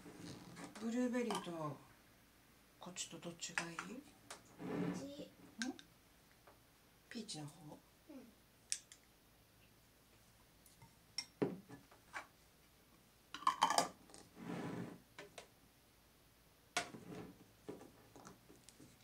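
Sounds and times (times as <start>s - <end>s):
glass jars knocking and clinking: 13.4s - 14.0s.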